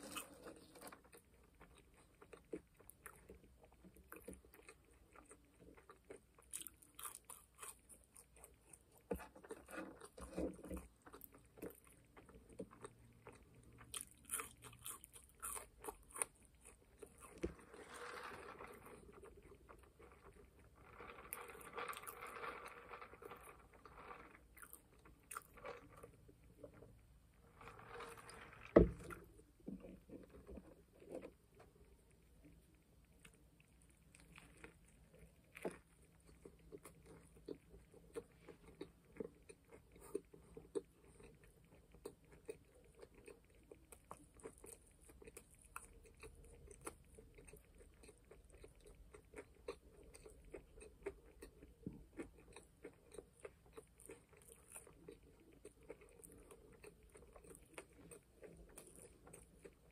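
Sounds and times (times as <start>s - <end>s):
wet chewing and biting: 0.0s - 17.6s
soft clicks and crunches: 0.0s - 59.9s.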